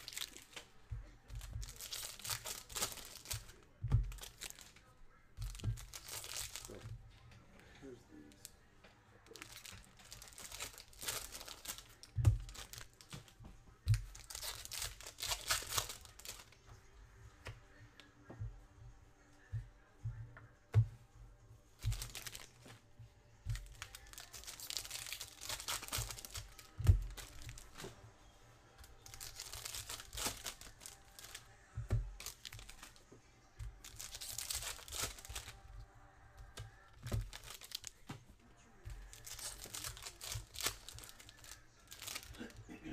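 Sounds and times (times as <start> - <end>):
foil packs tearing and crinkling: 0.0 - 0.6, 1.4 - 4.7, 5.4 - 6.8, 9.3 - 13.2, 14.0 - 16.5, 21.8 - 22.6, 23.5 - 28.0, 28.9 - 31.5, 32.1 - 33.0, 33.7 - 35.6, 37.0 - 38.1, 39.0 - 42.5.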